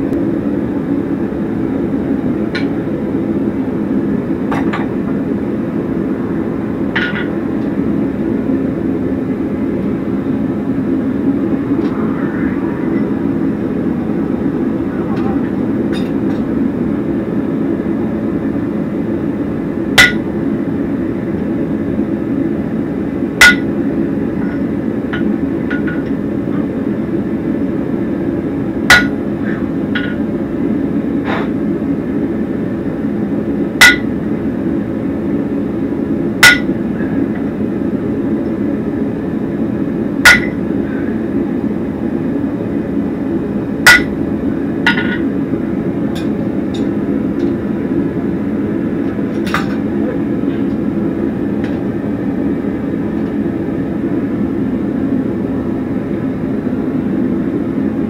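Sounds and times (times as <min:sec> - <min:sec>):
low rushing noise: 0:00.0 - 0:22.3
hammer striking anvil: 0:20.0 - 0:20.3, 0:23.4 - 0:23.7, 0:28.9 - 0:29.2, 0:33.8 - 0:34.1, 0:36.4 - 0:36.7, 0:40.3 - 0:40.6, 0:43.9 - 0:44.1, 0:44.9 - 0:45.2.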